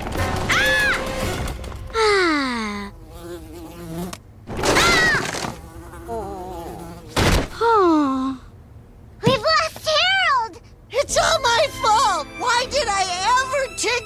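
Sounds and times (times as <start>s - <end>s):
cartoon fly buzzing: 2.0s - 7.3s.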